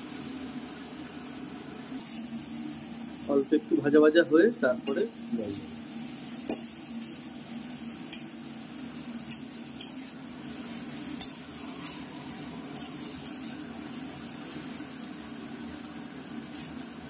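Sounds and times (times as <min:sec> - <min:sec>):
leaves frying in oil: 0:00.0 - 0:17.0
metal spatula scraping a pan: 0:11.1 - 0:12.0, 0:12.7 - 0:13.6.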